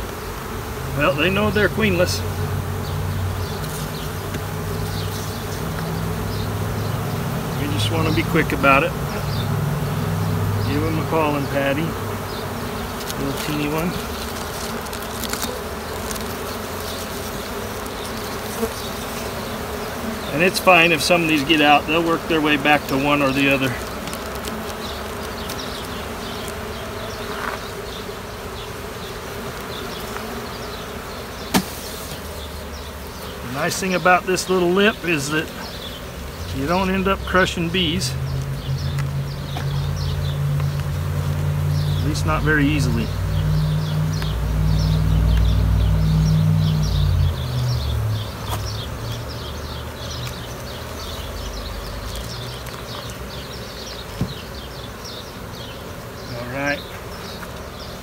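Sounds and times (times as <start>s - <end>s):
honeybees buzzing: 0.0s - 58.0s
loud low drone: 36.6s - 48.3s.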